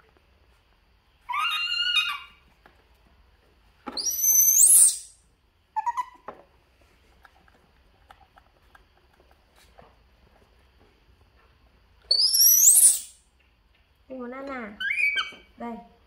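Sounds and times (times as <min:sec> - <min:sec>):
baby monkey squealing calls: 0:01.3 - 0:02.4, 0:04.0 - 0:05.1, 0:05.8 - 0:06.3, 0:12.1 - 0:13.2, 0:14.8 - 0:15.5.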